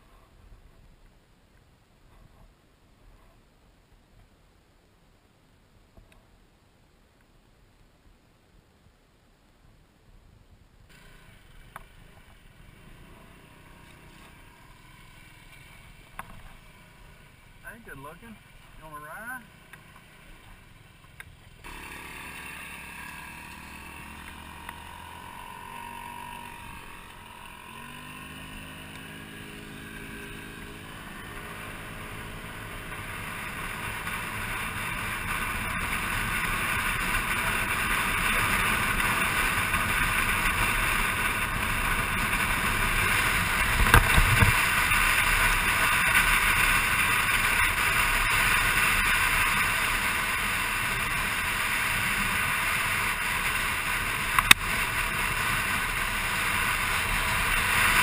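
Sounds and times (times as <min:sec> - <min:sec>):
wind and road noise: 0:00.0 - 0:58.0
motor scooter engine: 0:10.9 - 0:17.6, 0:19.4 - 0:58.0.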